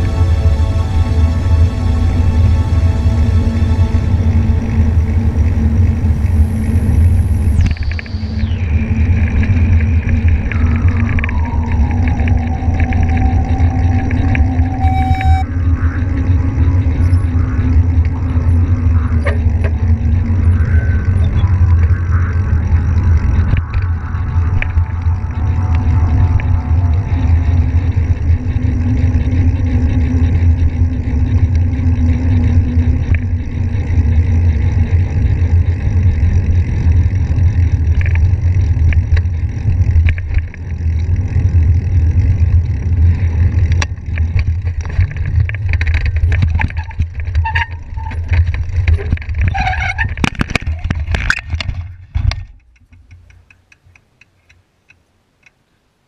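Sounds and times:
wind buffeting: 0.0 - 53.3
road rumble: 0.0 - 56.0
bike rattles and knocks: 27.2 - 53.7.

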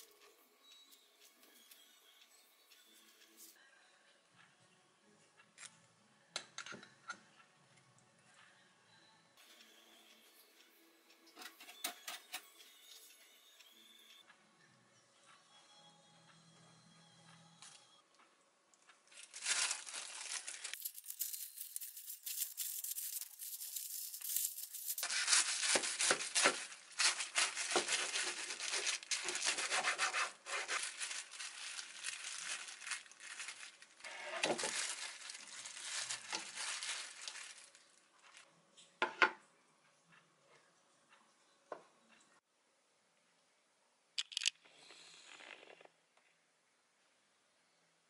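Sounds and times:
cling wrap crinkling: 19.1 - 38.4
knife cutting through wrap: 19.3 - 33.0.

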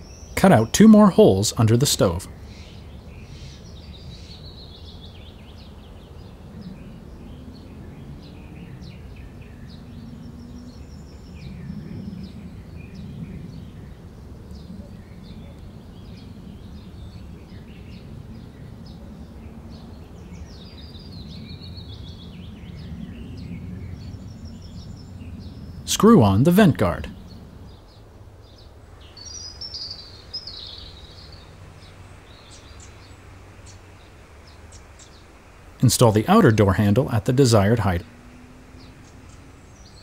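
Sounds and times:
birds chirping and trilling: 0.0 - 40.0.

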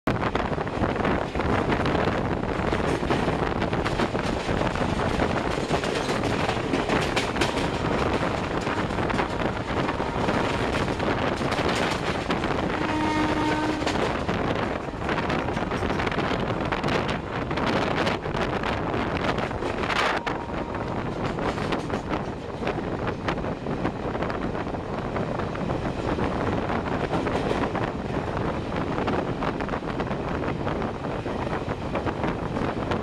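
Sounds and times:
train wheels rumbling on rails: 0.1 - 33.0
wind buffeting microphone: 0.1 - 33.0
train horn note: 12.7 - 14.1, 20.1 - 21.1.

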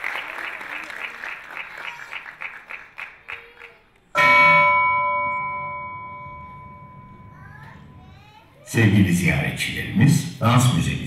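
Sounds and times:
audience applause: 0.0 - 4.1
bell-like chime ringing: 4.2 - 8.4.

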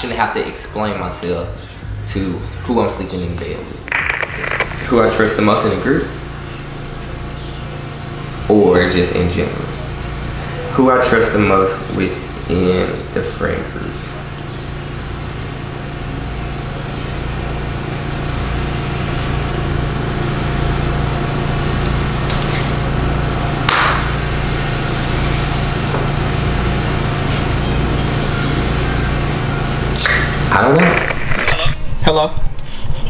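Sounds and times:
low droning hum: 1.4 - 8.4.

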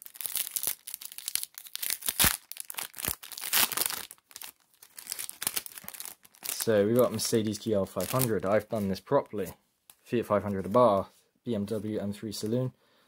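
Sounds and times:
foil wrapper crinkling and tearing: 0.0 - 8.9
cards being handled: 5.0 - 10.9.

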